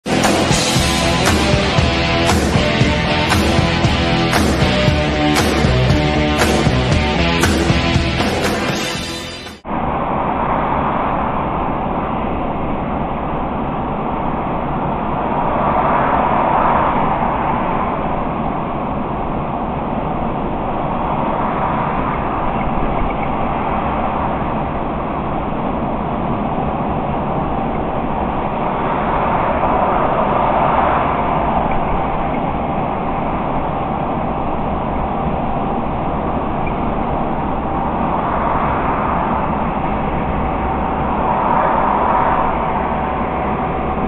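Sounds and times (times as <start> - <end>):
road and engine noise in cab: 9.6 - 44.0.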